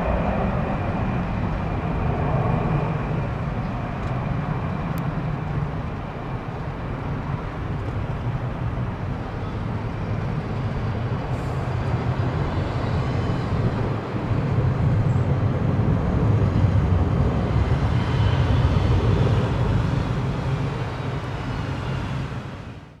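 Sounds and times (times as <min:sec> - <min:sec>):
jet engines roaring at takeoff: 0:00.0 - 0:23.0.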